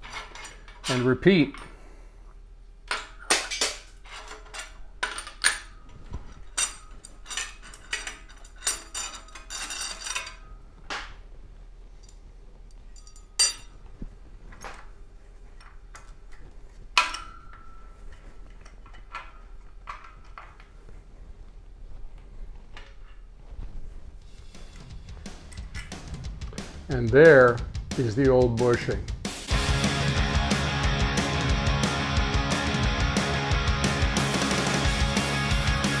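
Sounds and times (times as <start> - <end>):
metal tool parts clinking: 0.0 - 1.8, 2.9 - 10.6, 12.9 - 13.7.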